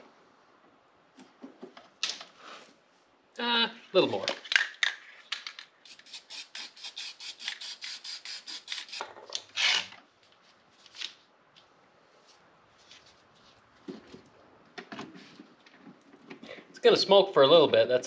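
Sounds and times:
spray paint hiss: 5.8 - 9.0.

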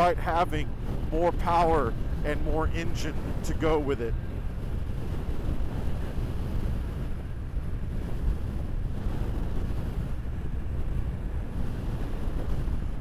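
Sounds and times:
low rumble of road: 0.0 - 13.0
wind buffeting microphone: 0.0 - 13.0.

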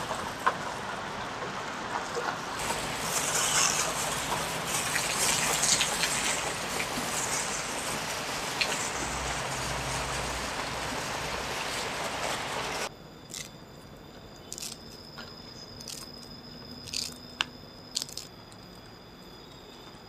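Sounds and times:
rushing hiss: 0.0 - 12.9
flower petals snapping: 16.9 - 17.2, 17.9 - 18.3.

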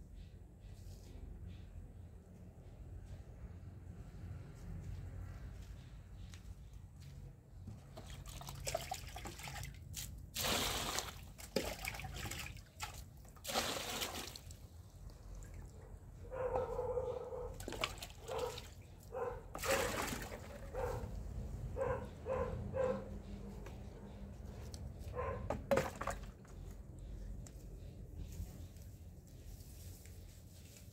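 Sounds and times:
water splashing onto soil: 8.0 - 14.7, 19.6 - 20.6.

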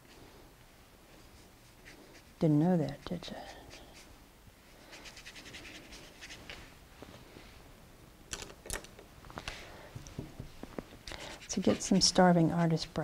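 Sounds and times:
brush scratching paper: 1.2 - 4.1, 4.8 - 6.4, 11.2 - 13.0.

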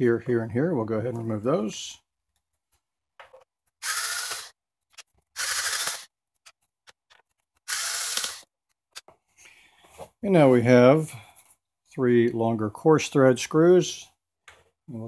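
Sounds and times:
cordless power screwdriver running: 3.8 - 4.6, 5.4 - 6.1, 7.6 - 8.5.

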